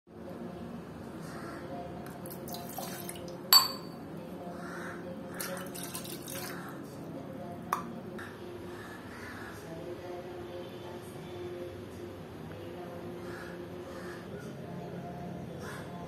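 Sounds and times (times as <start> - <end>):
water pouring into saucepan: 2.2 - 3.4, 5.4 - 6.7
metallic clink with ring: 3.6 - 4.0.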